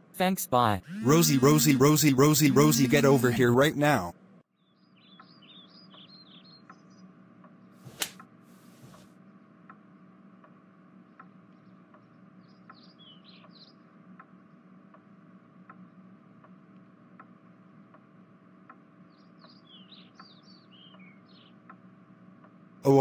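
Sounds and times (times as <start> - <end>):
birds chirping: 0.6 - 8.0, 11.5 - 13.9, 19.0 - 21.7
low hum: 0.8 - 4.4
sharp click: 7.9 - 8.2.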